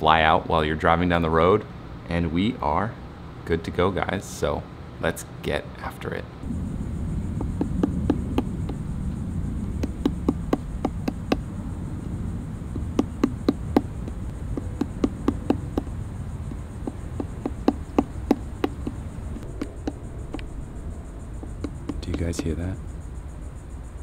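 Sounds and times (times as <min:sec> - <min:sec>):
high insect buzz: 0:06.4 - 0:24.0
woodpecker tapping on wood: 0:07.4 - 0:08.8, 0:09.6 - 0:11.5, 0:12.7 - 0:20.5, 0:21.4 - 0:22.7.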